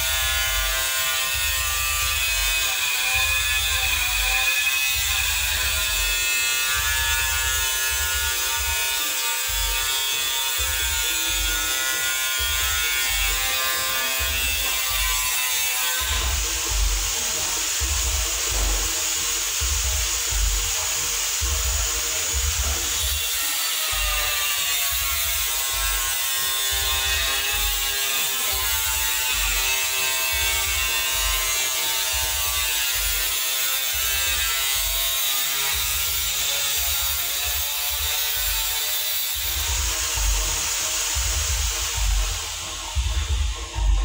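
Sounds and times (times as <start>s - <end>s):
music with steady bass beat: 0.0s - 44.0s
sustained pitched tone: 39.6s - 44.0s.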